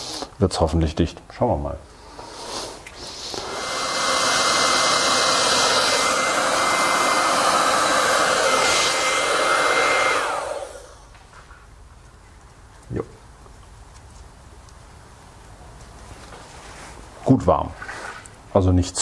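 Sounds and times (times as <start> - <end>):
hot air gun blowing and whining: 2.1 - 11.1.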